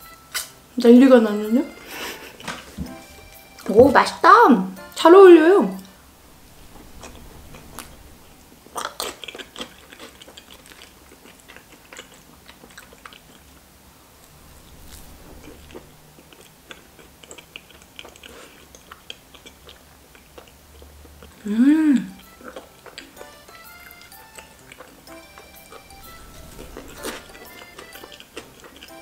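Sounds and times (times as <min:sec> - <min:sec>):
wet chewing: 0:05.8 - 0:29.0
person humming mmm: 0:21.4 - 0:22.3.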